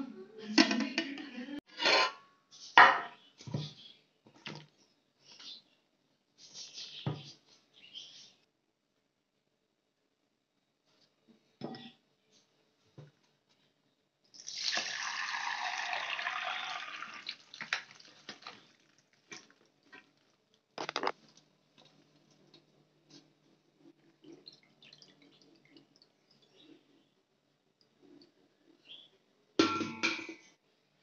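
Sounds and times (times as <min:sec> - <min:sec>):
water running: 0:14.3 - 0:20.6
kitchen clicks and knocks: 0:29.6 - 0:30.5.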